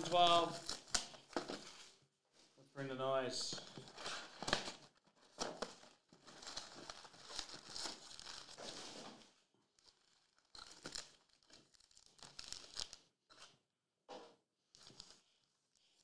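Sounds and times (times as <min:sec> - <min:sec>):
foil packs crinkling: 0:03.5 - 0:13.0
wrapper tearing: 0:03.8 - 0:09.0, 0:09.8 - 0:13.0.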